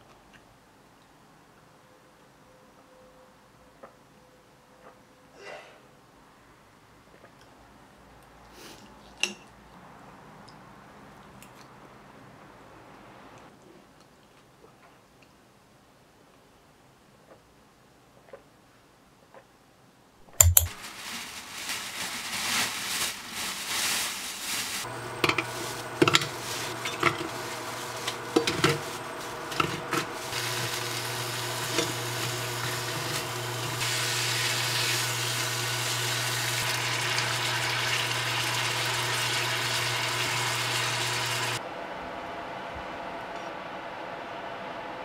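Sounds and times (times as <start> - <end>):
meat sizzling in a pan: 24.8 - 41.6.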